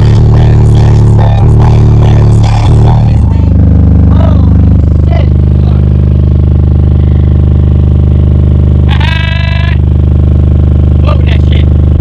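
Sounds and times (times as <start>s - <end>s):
deep subwoofer bass note: 0.0s - 12.0s
brief high-pitched tone: 3.2s - 7.4s.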